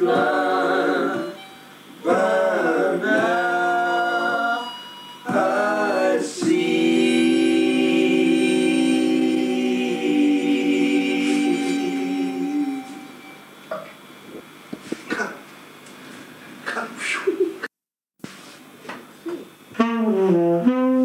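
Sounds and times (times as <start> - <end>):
harmonica: 0.0 - 13.5
person singing: 5.3 - 13.3.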